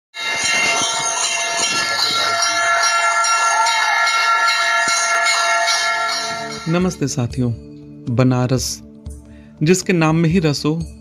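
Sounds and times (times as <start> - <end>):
many bells ringing: 0.1 - 7.6.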